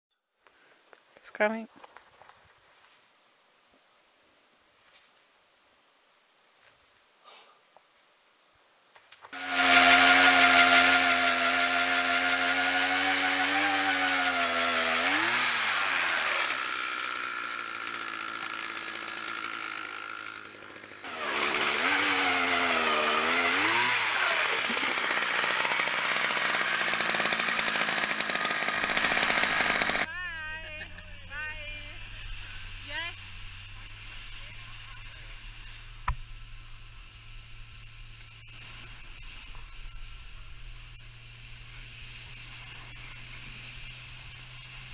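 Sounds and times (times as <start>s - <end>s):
ice auger engine drilling: 9.4s - 30.1s.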